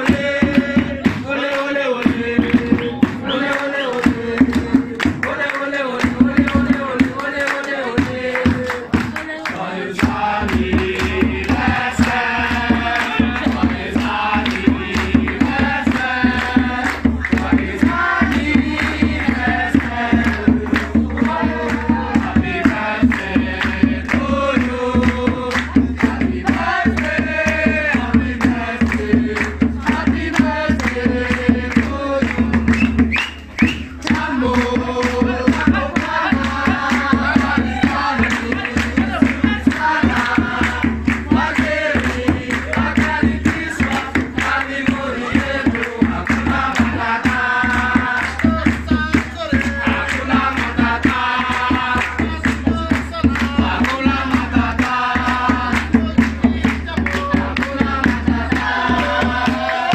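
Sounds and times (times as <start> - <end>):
song with singing bass and drums: 0.0 - 59.9.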